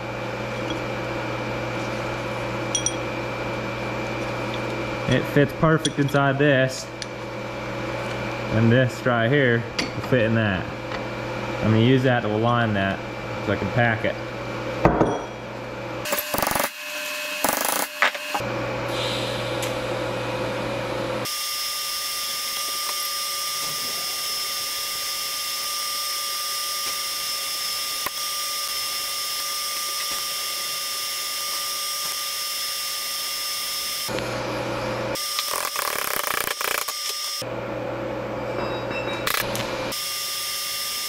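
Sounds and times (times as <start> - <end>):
metal knocks and clinks: 2.7 - 3.0, 38.6 - 39.3
welding arc hissing with high whine: 16.0 - 37.5, 39.2 - 41.0.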